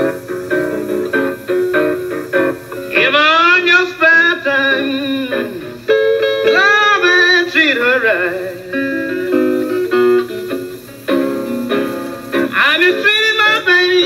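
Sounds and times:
acoustic guitar: 0.0s - 14.0s
man singing with vibrato: 2.8s - 10.9s, 11.6s - 14.0s.

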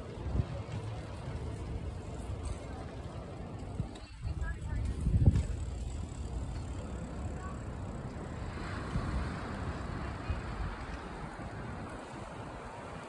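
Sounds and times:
wind buffeting microphone: 0.0s - 13.0s
ocean surf washing: 6.9s - 13.0s.

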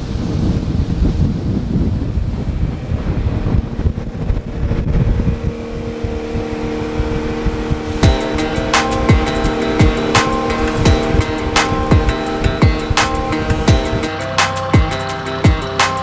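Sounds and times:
wind buffeting microphone: 0.0s - 16.0s
held tones of background music: 5.6s - 16.0s
sharp struck notes: 7.8s - 16.0s.

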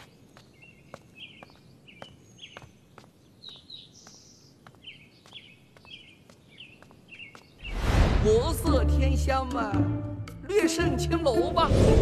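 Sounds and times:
small birds chirping: 0.0s - 7.9s.

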